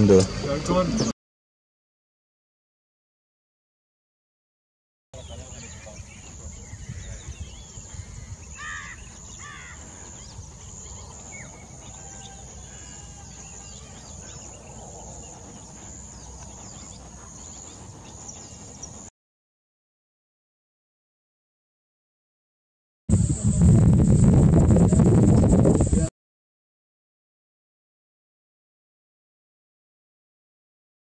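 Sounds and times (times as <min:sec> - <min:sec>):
bird calls: 0:05.2 - 0:19.1
faint chirps: 0:05.2 - 0:19.1
insect drone: 0:05.2 - 0:19.1, 0:23.1 - 0:26.1.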